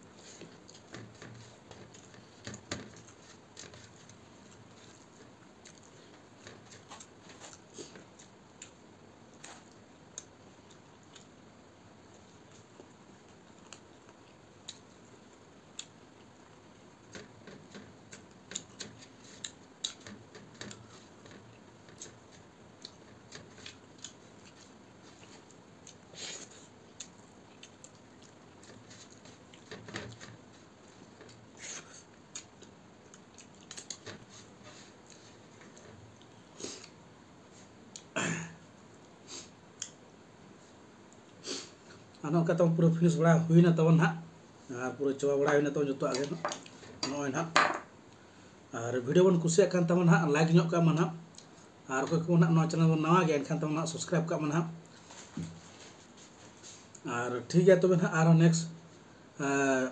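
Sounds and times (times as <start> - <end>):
chewing: 0.1 - 11.4, 12.0 - 37.0.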